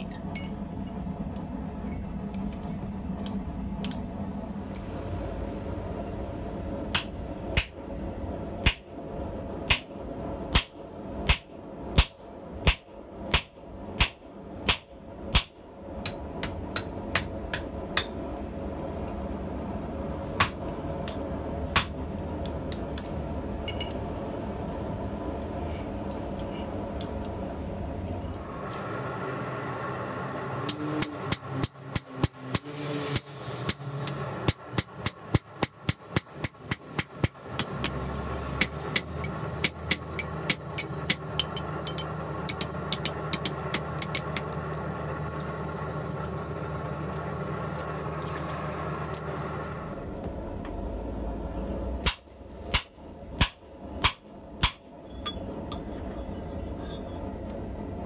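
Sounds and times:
low hum: 0.0s - 58.0s
hammer striking metal punch: 6.9s - 7.8s, 8.6s - 8.9s, 9.7s - 18.2s, 20.4s - 22.0s, 52.0s - 55.9s.

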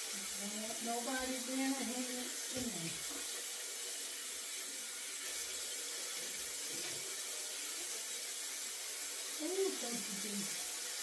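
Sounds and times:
faucet running into sink: 0.0s - 11.0s.

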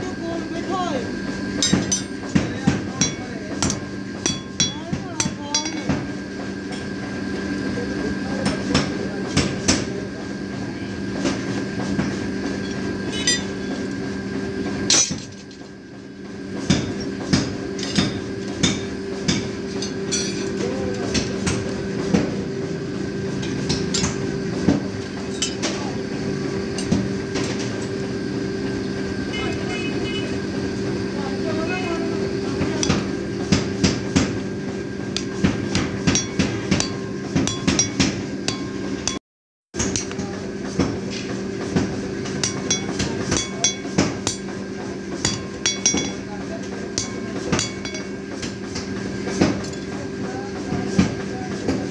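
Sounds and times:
hammer striking steel on anvil: 1.6s - 6.1s, 12.0s - 13.9s, 14.9s - 15.5s, 16.6s - 22.3s, 32.7s - 34.4s, 35.1s - 39.2s, 39.8s - 40.2s, 42.3s - 49.9s.

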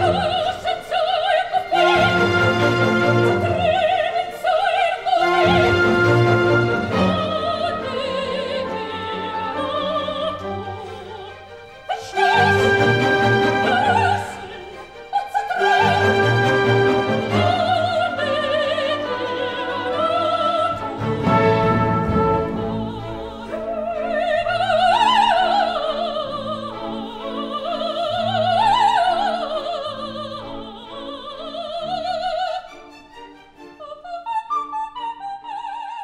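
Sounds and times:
operatic singing with vibrato: 0.0s - 36.0s.

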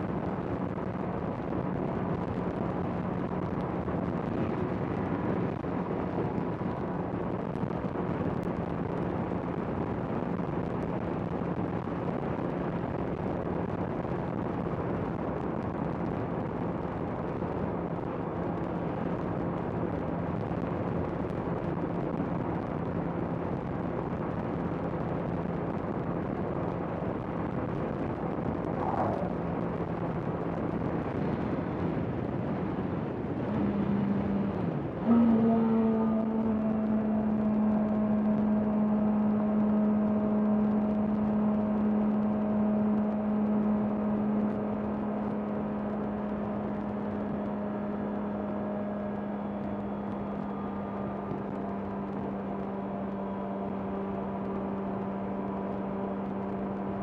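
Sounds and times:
wind and road noise: 0.0s - 57.0s
motorcycle engine humming: 22.9s - 57.0s.

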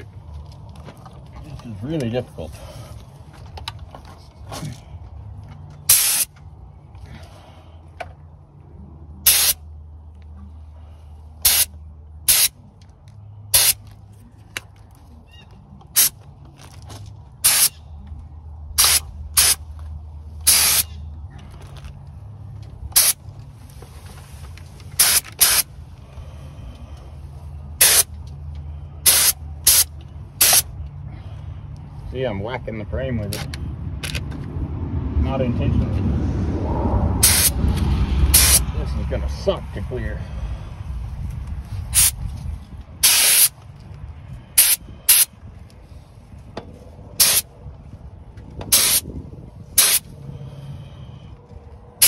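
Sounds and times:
paint spray gun hissing: 5.9s - 6.3s, 9.3s - 9.6s, 11.4s - 11.7s, 12.3s - 12.5s, 13.6s - 13.8s, 17.4s - 17.7s, 18.8s - 19.6s, 20.5s - 20.8s, 23.0s - 23.2s, 25.0s - 25.6s, 27.8s - 28.0s, 29.1s - 30.6s, 37.2s - 37.5s, 38.4s - 38.6s, 43.0s - 43.5s, 44.6s - 45.3s, 47.2s - 47.4s, 48.7s - 49.0s, 49.8s - 50.0s.

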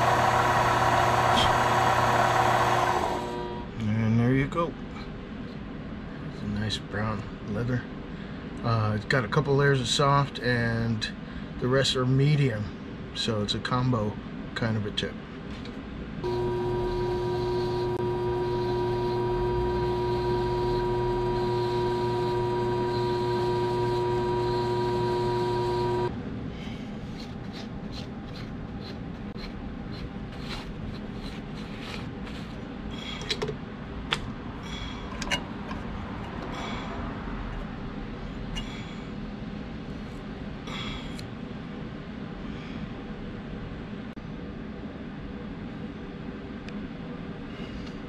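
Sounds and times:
lathe motor whine: 0.0s - 3.8s, 16.2s - 26.1s.

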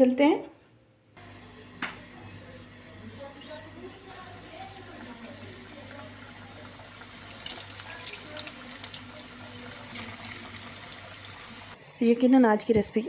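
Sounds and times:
food deep-frying in hot oil: 3.3s - 13.0s.

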